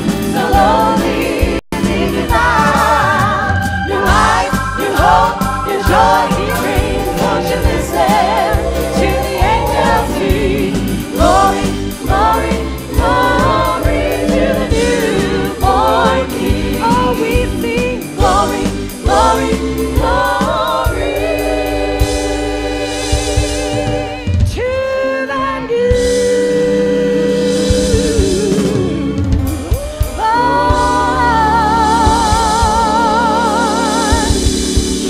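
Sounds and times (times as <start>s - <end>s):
keyboard: 0.0s - 24.3s
singers performing gospel song: 0.0s - 35.0s.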